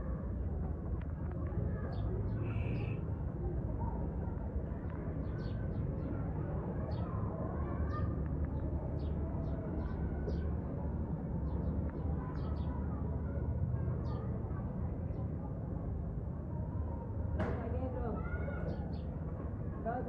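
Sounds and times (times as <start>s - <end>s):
small birds chirping: 1.8s - 3.0s.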